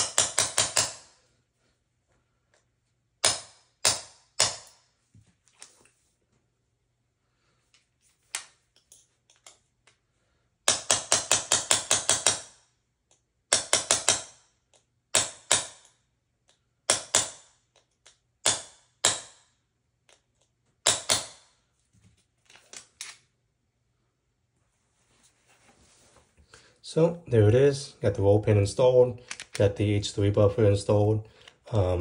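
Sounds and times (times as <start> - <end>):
hammer tapping a pin: 0.0 - 1.1, 3.2 - 4.8, 10.6 - 19.4.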